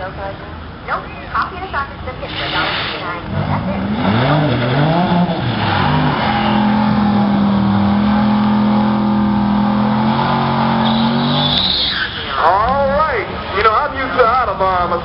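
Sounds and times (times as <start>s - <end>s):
car engine revving at high rpm: 3.2s - 11.7s.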